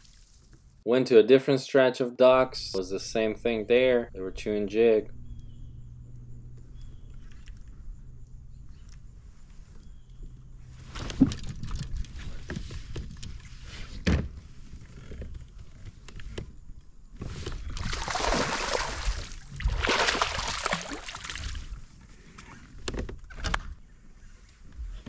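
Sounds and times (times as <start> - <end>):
fish thrashing and splashing: 17.7 - 21.8.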